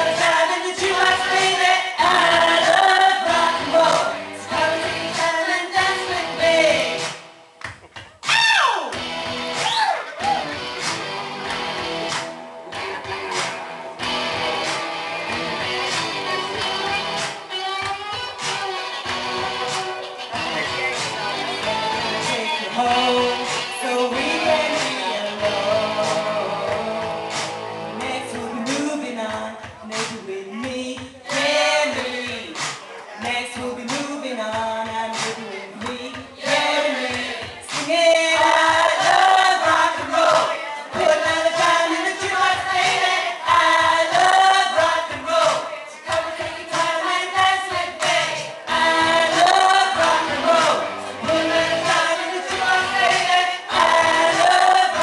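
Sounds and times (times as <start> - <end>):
woman singing: 0.0 - 7.1, 21.6 - 32.6, 33.2 - 55.0
musical accompaniment: 8.8 - 30.2, 41.0 - 55.0.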